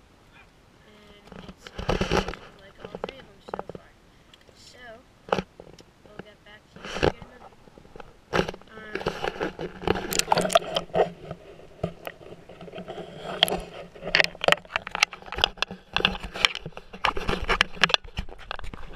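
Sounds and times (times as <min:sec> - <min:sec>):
camera handling knocks and scrapes: 0:06.8 - 0:18.9.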